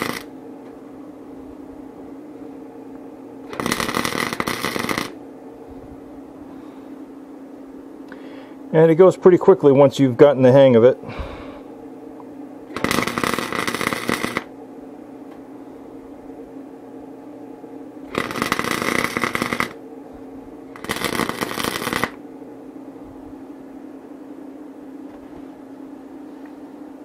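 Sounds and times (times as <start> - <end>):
welder crackling sizzle: 0.0 - 0.4, 3.4 - 5.2, 12.7 - 14.5, 18.1 - 19.8, 20.7 - 22.2
steady hum: 0.0 - 27.0.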